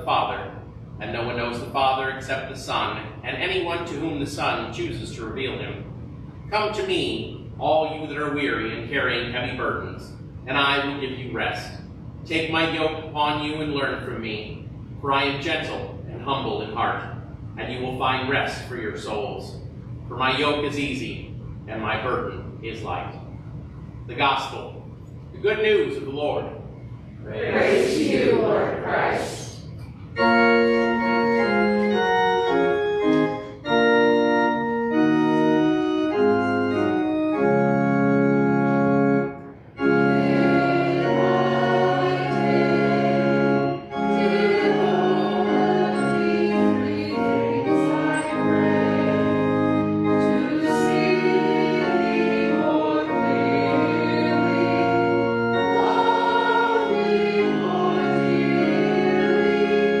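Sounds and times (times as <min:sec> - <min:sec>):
organ playing a hymn: 0:00.0 - 1:00.0
congregation singing: 0:27.2 - 1:00.0.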